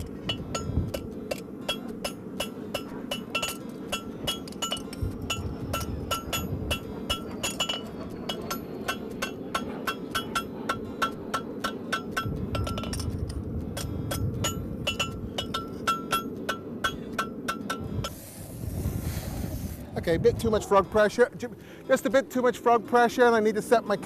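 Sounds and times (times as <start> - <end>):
hammer striking horseshoe on anvil: 0.0 - 17.9.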